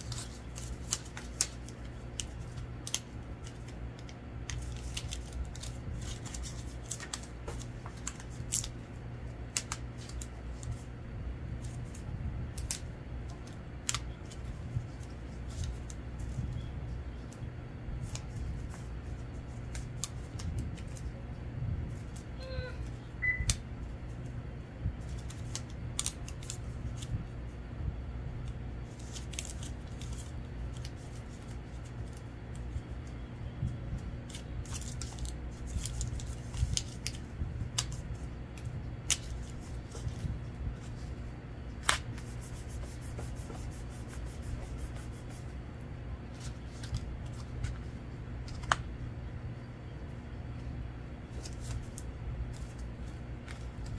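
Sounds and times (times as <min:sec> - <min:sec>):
paper clicks and ticks: 0:00.0 - 0:08.8
steady low hum: 0:00.0 - 0:53.9.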